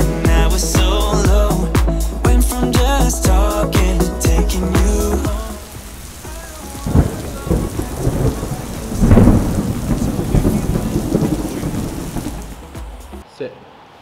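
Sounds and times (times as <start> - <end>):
heavy rain: 3.0 - 13.2
thunder rumbling and crackling: 5.8 - 13.0.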